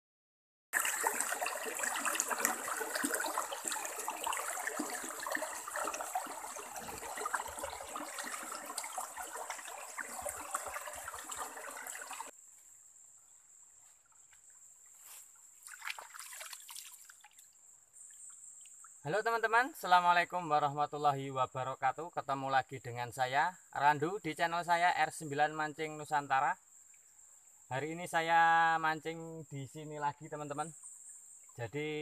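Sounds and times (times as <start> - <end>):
hands rinsed in water: 0.8 - 12.3
stream rushing over rocks: 0.8 - 12.3
high-pitched insect tone: 1.8 - 32.0.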